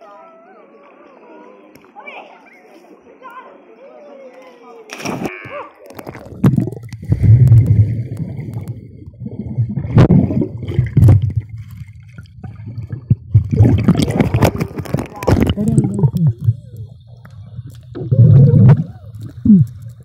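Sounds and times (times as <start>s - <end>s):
muffled underwater sloshing: 4.9s - 20.0s.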